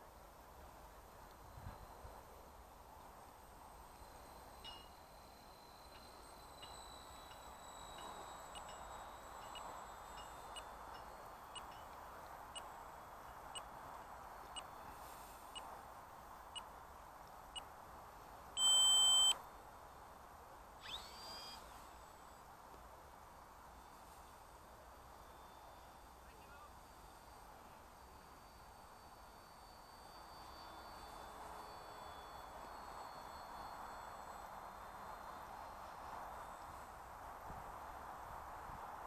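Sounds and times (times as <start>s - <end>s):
electronic beeper pips: 18.6s - 19.4s
loud beep: 18.6s - 19.4s.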